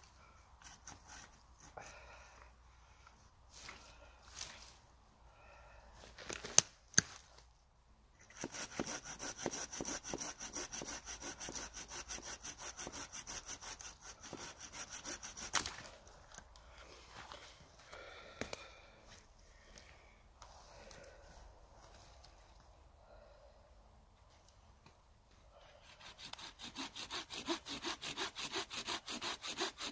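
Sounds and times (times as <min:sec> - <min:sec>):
hand saw cutting log: 0:00.6 - 0:01.8, 0:08.3 - 0:15.8, 0:25.8 - 0:29.9.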